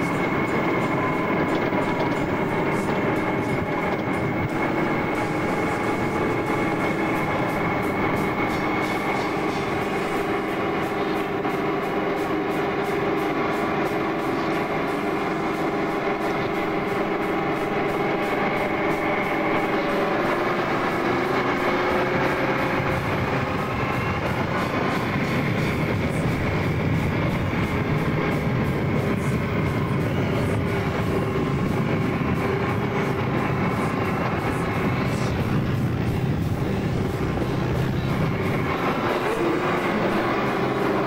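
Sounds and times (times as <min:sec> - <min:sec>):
tracked vehicle engine and tracks: 0:00.0 - 0:41.0.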